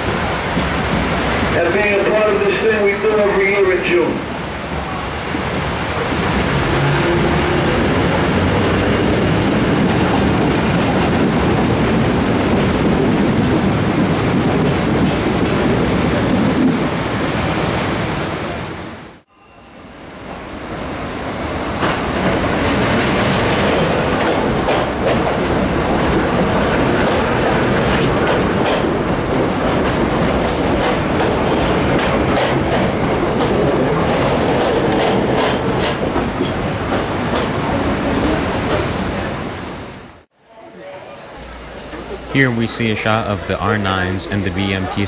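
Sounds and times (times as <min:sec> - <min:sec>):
subway train wheels rumbling on rails: 0:00.0 - 0:18.9, 0:19.9 - 0:40.2
rapid clicking over rail joints: 0:21.8 - 0:37.6.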